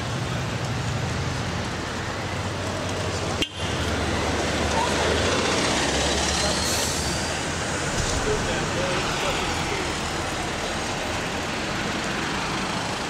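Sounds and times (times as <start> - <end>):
road traffic: 0.0 - 13.0
indistinct voices: 4.4 - 11.9.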